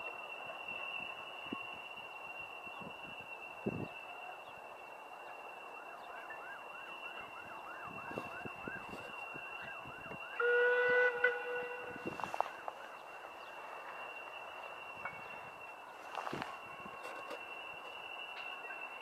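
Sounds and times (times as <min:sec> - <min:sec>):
faint high squeal: 0:05.3 - 0:19.0
locomotive whistle: 0:06.0 - 0:12.7.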